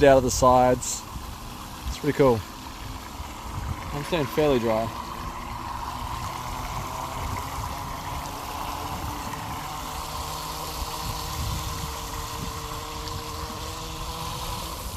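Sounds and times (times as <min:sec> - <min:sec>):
wind rumbling on microphone: 0:00.0 - 0:14.9.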